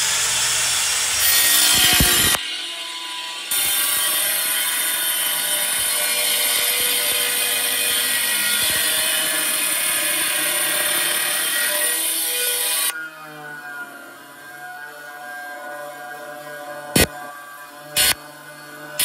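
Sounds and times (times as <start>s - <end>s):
power tool grinding whir: 0.0s - 19.0s.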